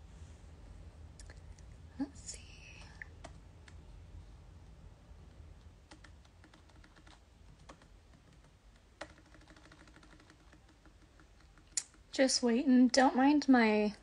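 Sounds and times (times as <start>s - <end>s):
low steady hum: 0.0s - 14.0s
keyboard typing clicks: 5.9s - 12.0s.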